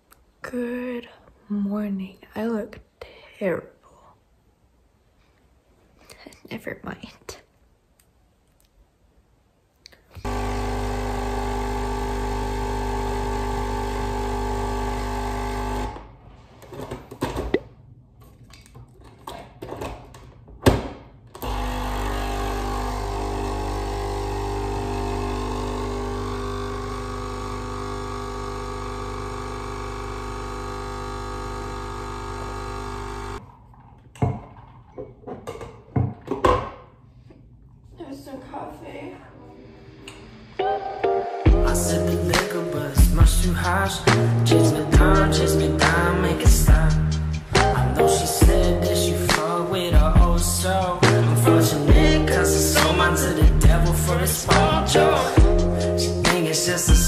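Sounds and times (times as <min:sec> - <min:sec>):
coffee machine humming: 0:10.2 - 0:16.0, 0:21.4 - 0:33.4, 0:41.6 - 0:57.0.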